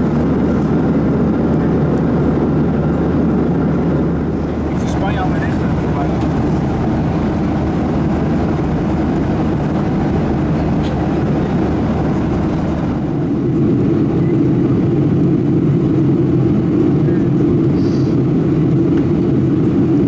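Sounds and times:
airflow over fuselage: 0.0s - 20.0s
airliner cabin engine roar: 0.0s - 20.0s.

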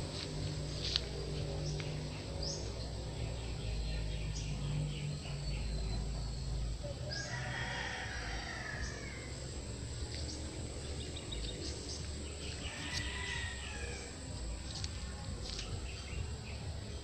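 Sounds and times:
high-pitched hum: 0.0s - 17.0s
rooster crowing: 7.0s - 9.9s, 12.6s - 14.4s.

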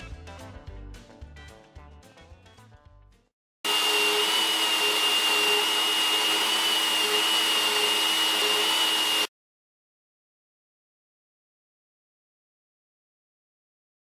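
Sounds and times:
chain cutting through wood: 3.7s - 9.3s
electric chainsaw motor whine: 3.7s - 9.3s.

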